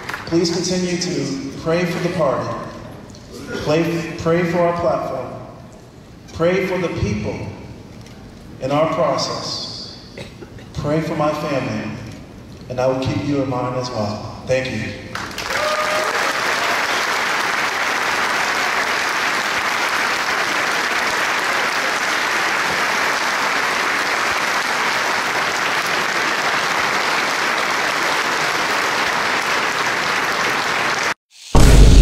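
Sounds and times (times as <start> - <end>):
large audience applauding: 0.0 - 0.7, 15.1 - 31.2.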